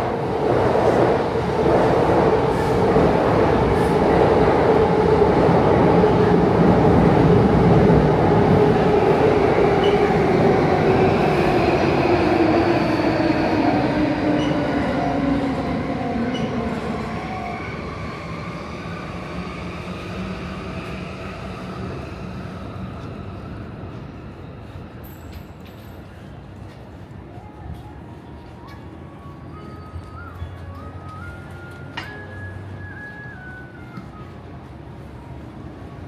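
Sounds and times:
electric train passing: 0.0s - 26.0s.

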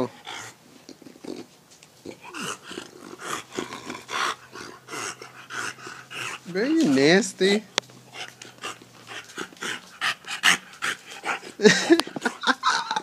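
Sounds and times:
dog panting: 0.0s - 1.4s, 2.1s - 12.9s
dog grunt: 0.0s - 6.8s, 8.1s - 12.6s.

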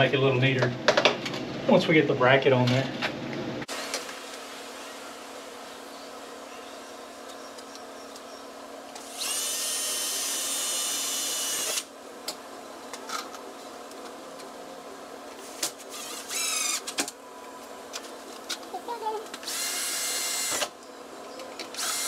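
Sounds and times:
cordless drill motor whine: 9.0s - 11.9s, 15.4s - 16.8s, 19.4s - 20.7s, 21.7s - 22.0s.

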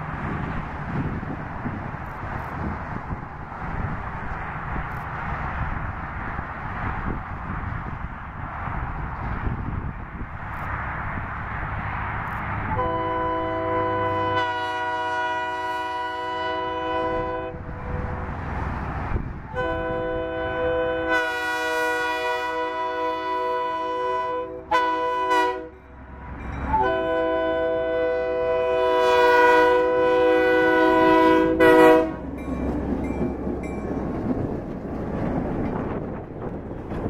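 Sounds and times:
locomotive engine rumbling: 0.0s - 37.0s
locomotive air horn blasts: 12.7s - 18.3s, 19.5s - 25.8s, 26.7s - 32.3s.

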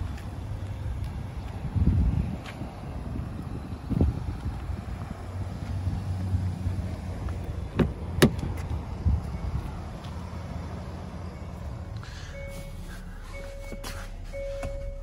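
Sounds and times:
wind rumble on microphone: 0.0s - 10.0s
car door handle clicks: 7.8s - 8.7s
electronic chime beeping: 12.3s - 15.0s.

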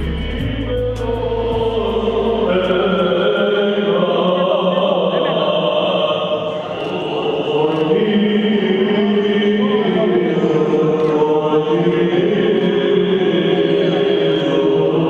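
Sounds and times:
choir singing long notes: 0.0s - 15.0s
low drone: 0.0s - 15.0s.

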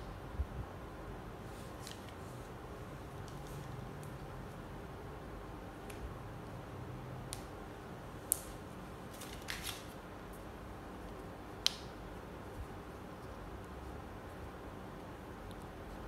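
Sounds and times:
low steady hiss: 0.0s - 16.0s
crinkly paper rustle: 9.1s - 10.0s.

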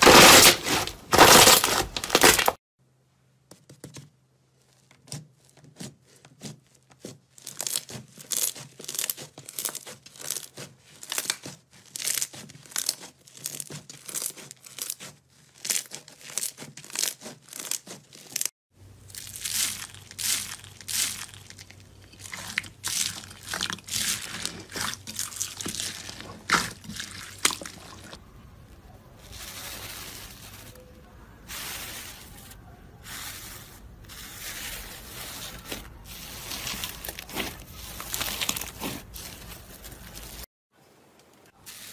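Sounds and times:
foam beads crunching: 0.0s - 2.6s, 6.4s - 28.2s, 29.2s - 40.5s, 41.6s - 41.9s
hands squishing slime: 4.9s - 18.5s, 19.1s - 28.2s, 33.0s - 40.4s.

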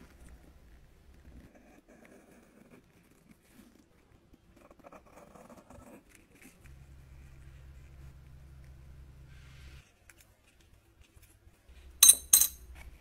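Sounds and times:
low steady hum: 6.6s - 9.8s.

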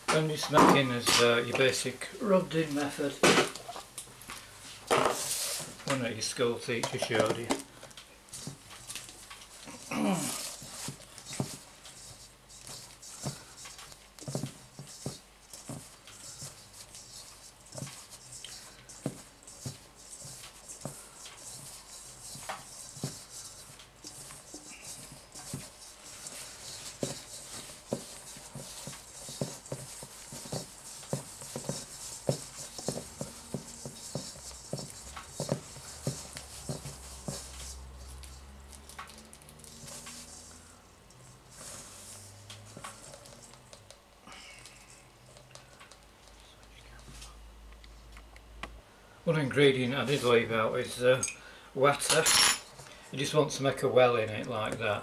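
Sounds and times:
fingertips rustling in flour: 1.0s - 7.4s, 8.1s - 44.0s.

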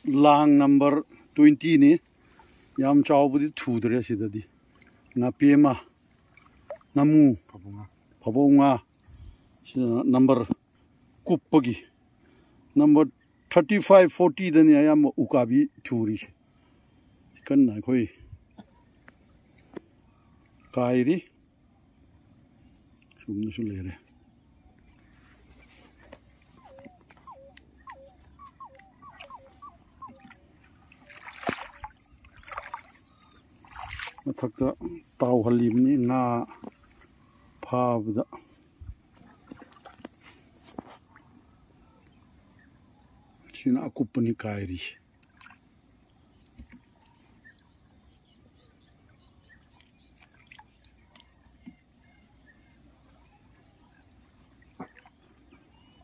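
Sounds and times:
water splashing: 4.5s - 8.2s, 25.4s - 37.6s, 39.0s - 42.8s, 45.0s - 56.0s.

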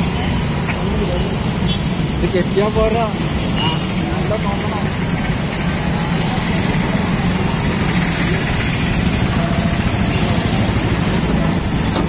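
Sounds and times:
motorcycle and scooter engines droning: 0.0s - 12.0s.

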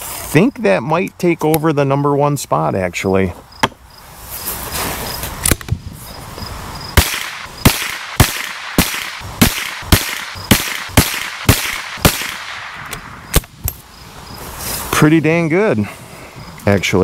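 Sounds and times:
rifle shots: 7.0s - 13.6s.

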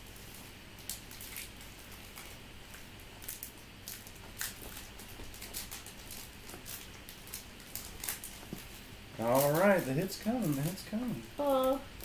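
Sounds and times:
trading cards rustling and ticking: 0.0s - 11.8s.

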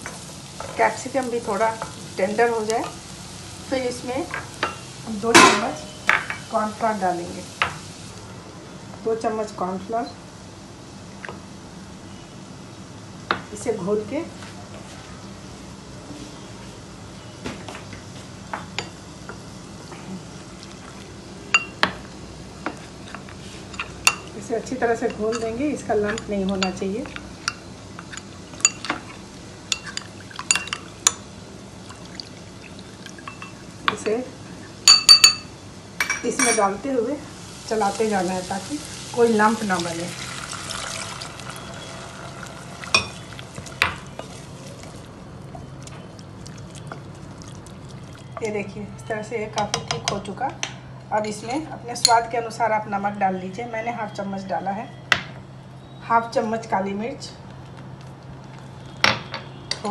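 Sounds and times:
vegetables sizzling in pot: 0.0s - 49.7s
metal spoon clinking glass bowl: 29.7s - 31.2s, 33.2s - 33.6s, 34.9s - 36.6s, 42.8s - 43.2s.

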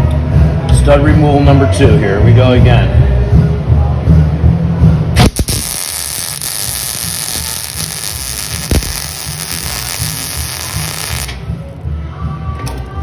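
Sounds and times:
welder arc hissing: 5.2s - 11.4s.

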